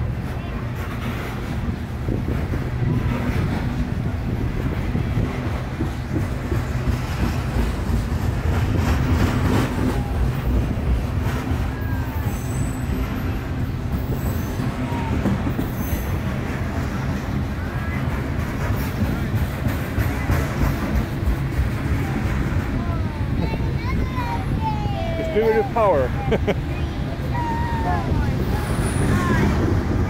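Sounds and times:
freight train rumbling past: 0:00.0 - 0:30.0
train wheel squeals: 0:09.2 - 0:19.0, 0:27.4 - 0:29.8.

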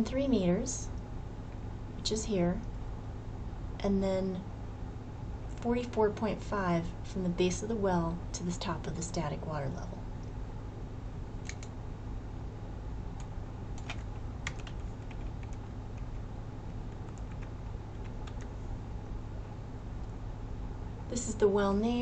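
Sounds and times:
low hum: 0:00.0 - 0:22.0
keyboard typing clicks: 0:11.4 - 0:11.7, 0:13.2 - 0:16.2, 0:16.9 - 0:18.5.

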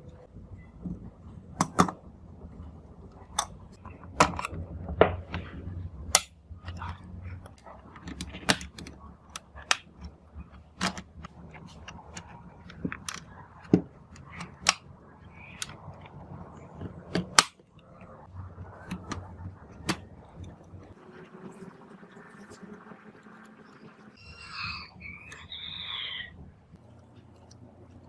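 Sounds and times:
hard plastic parts clicking: 0:06.1 - 0:18.1.

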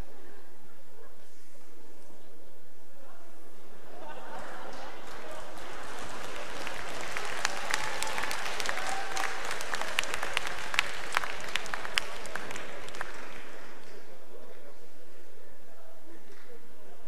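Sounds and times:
audience applause: 0:04.0 - 0:14.0.

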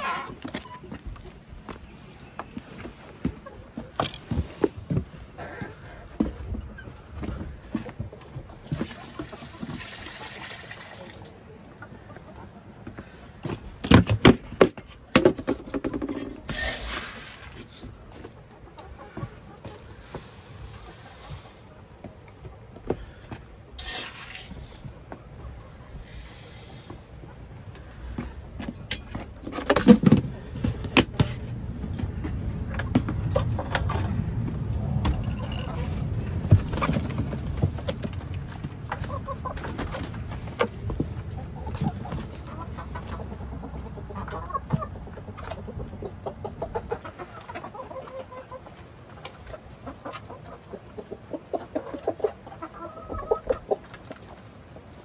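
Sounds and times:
dry grain rustling and pouring: 0:23.8 - 0:24.8.

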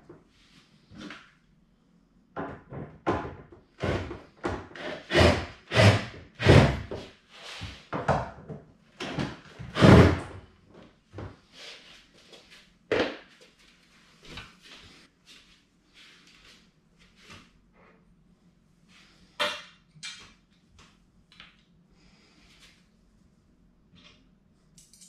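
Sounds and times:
knocks and thumps on wardrobe panels: 0:02.4 - 0:04.8, 0:07.9 - 0:10.4.

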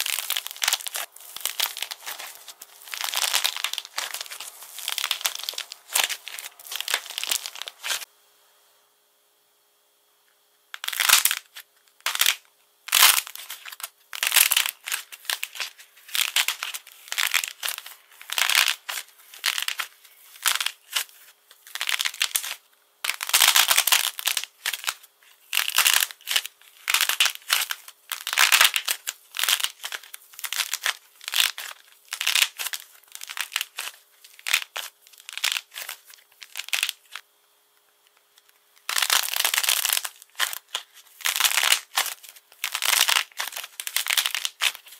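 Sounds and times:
hardened coating cracking: 0:00.0 - 0:08.0, 0:10.8 - 0:37.2.

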